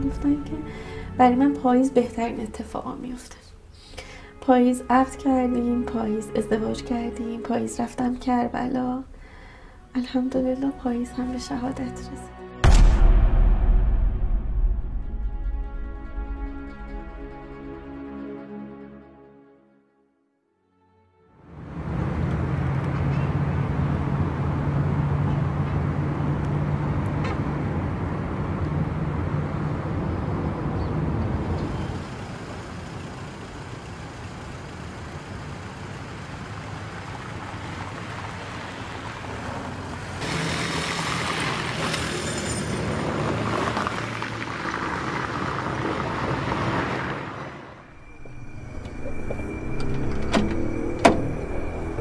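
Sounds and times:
cars passing: 0.0s - 12.3s, 21.4s - 52.0s
vehicle engines running: 21.6s - 52.0s.

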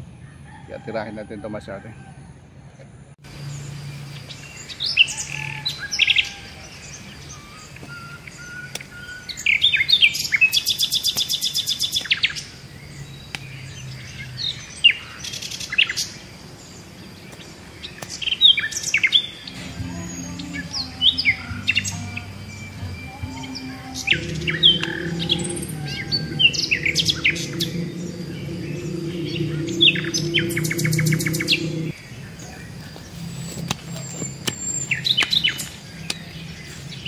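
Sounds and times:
birds chirping: 1.6s - 37.0s
bird trill: 18.4s - 35.8s.

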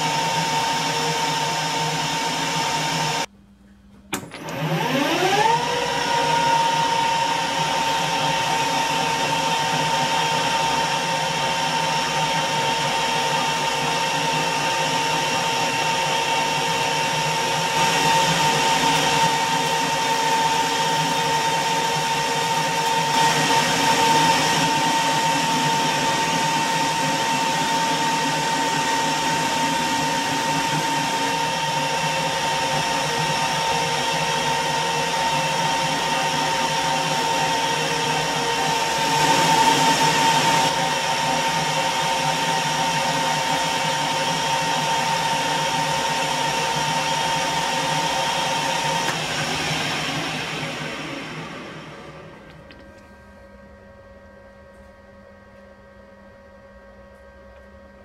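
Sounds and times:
steady machine whine: 4.1s - 58.0s.

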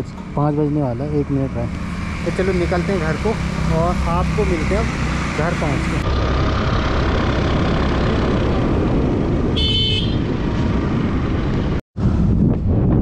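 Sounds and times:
wind rush on microphone: 7.0s - 13.0s
high-pitched horn toot: 9.6s - 10.3s.

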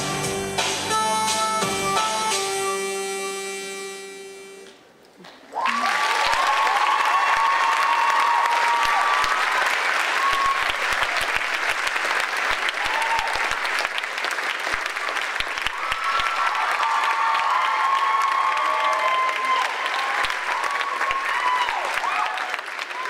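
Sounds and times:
music: 0.0s - 4.7s
audience applauding: 5.3s - 23.0s
crowd cheering: 5.5s - 23.0s.

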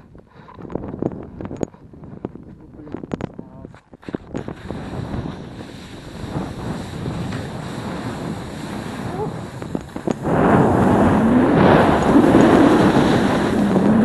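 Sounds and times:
wind buffeting microphone: 0.0s - 14.0s
skis scraping on snow: 4.0s - 14.0s.

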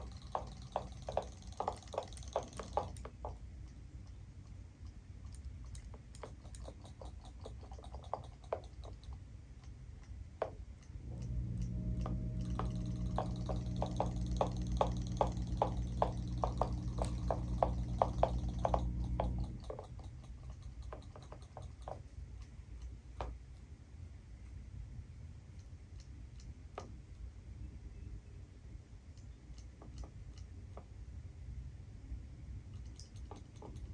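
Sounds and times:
robotic fish tails ticking: 0.0s - 23.6s
steady low hum: 0.0s - 33.9s.

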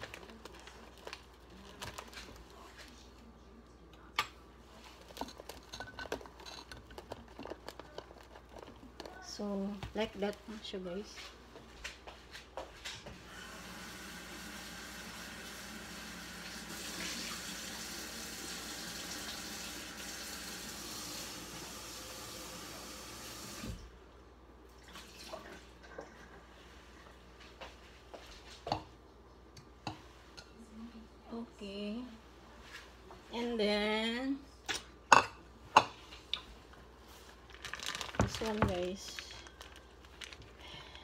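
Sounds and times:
kitchenware clattering: 5.0s - 8.6s, 34.7s - 36.1s
kitchen tap running into sink: 13.3s - 23.8s.

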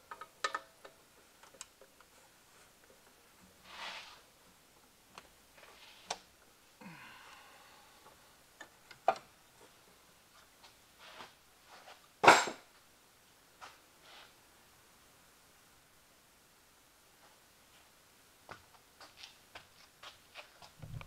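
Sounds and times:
hand tools clicking and knocking: 0.0s - 2.1s.

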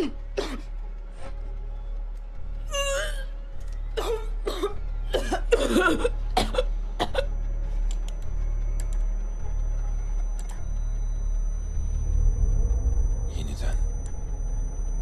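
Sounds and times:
woman coughing and choking: 0.0s - 0.7s, 4.0s - 7.3s.

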